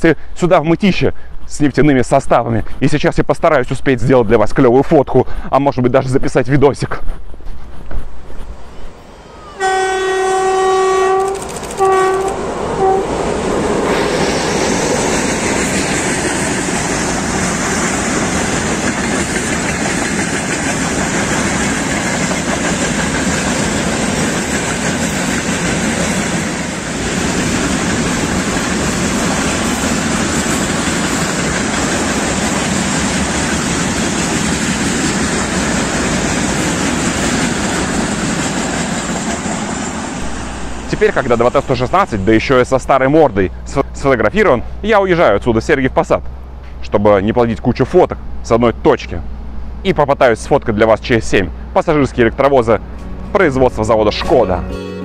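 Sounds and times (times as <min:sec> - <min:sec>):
diesel locomotive horn: 0:08.6 - 0:13.2
tank wagons rolling on track: 0:11.3 - 0:11.8.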